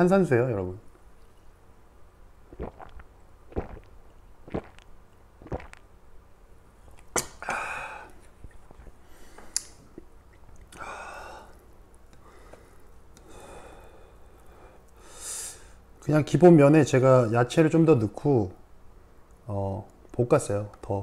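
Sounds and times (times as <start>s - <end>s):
man gulping water: 2.5s - 5.9s.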